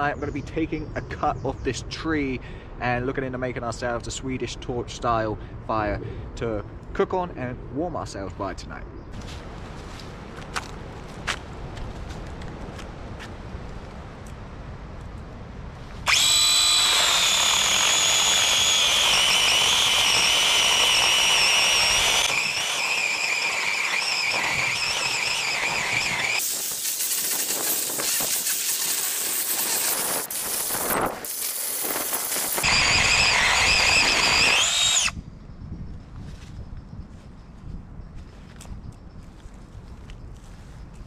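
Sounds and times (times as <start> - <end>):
chainsaw cutting log: 16.0 - 35.2
mini chainsaw whining: 16.1 - 35.2.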